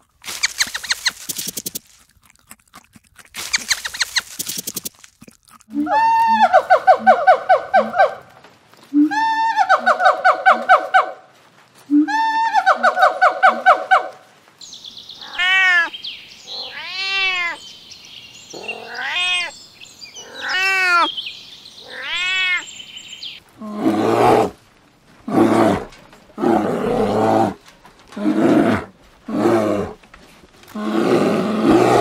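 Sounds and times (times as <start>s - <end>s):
cat meowing: 15.2s - 15.9s, 16.5s - 17.6s, 18.6s - 19.5s, 20.2s - 21.1s, 21.8s - 22.7s.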